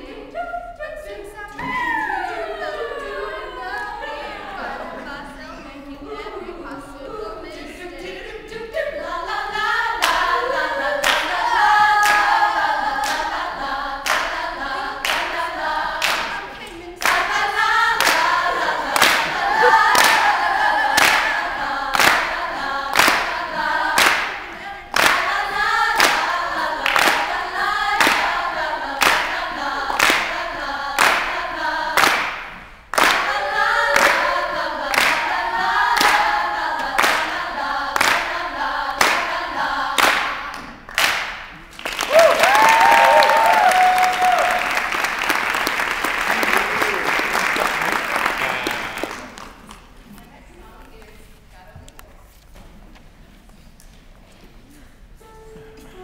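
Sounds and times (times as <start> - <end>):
female group singing a cappella: 0.0 - 41.6
hand claps: 22.0 - 22.2, 23.0 - 23.3, 24.0 - 24.4, 26.0 - 26.2, 26.9 - 27.3, 28.0 - 28.3, 29.0 - 29.3, 30.0 - 30.3, 31.0 - 31.3, 32.0 - 33.4, 35.0 - 35.2, 40.0 - 49.9.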